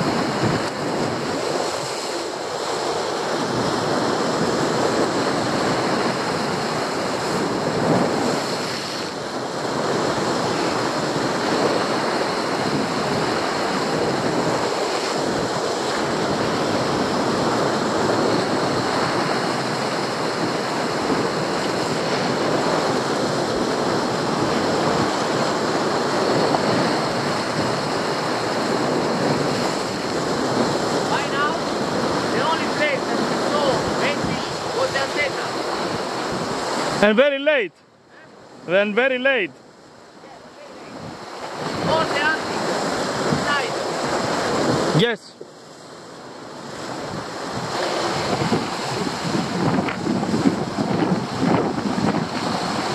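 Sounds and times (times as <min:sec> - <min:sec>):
surf breaking on rocks: 0:00.0 - 0:37.7, 0:38.3 - 0:52.9.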